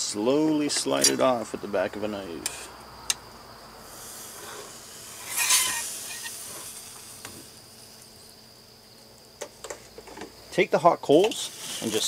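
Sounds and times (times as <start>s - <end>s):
sticky scraping slide on spit: 3.9s - 7.6s, 11.3s - 12.0s.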